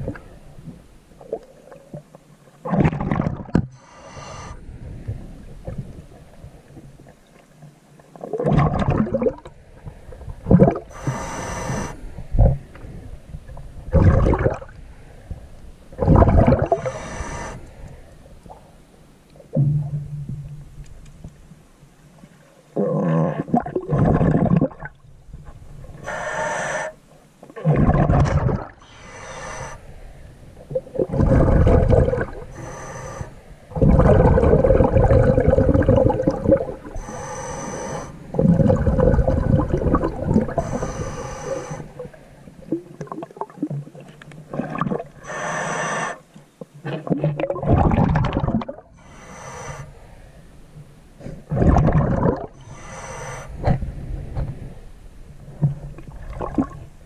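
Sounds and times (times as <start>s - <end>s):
gurgling bubbles: 2.6s - 3.7s, 8.2s - 9.5s, 10.3s - 11.8s, 13.9s - 14.8s, 16.0s - 17.0s, 22.8s - 25.0s, 27.6s - 28.8s, 30.7s - 32.8s, 33.7s - 37.5s, 38.3s - 45.2s, 47.0s - 49.0s, 51.5s - 52.6s, 55.8s - 56.9s
diver breathing through regulator: 3.7s - 4.7s, 10.9s - 12.2s, 16.6s - 18.2s, 26.0s - 27.0s, 28.8s - 30.4s, 31.1s - 42.3s, 45.2s - 46.3s, 49.0s - 50.6s, 52.6s - 54.8s.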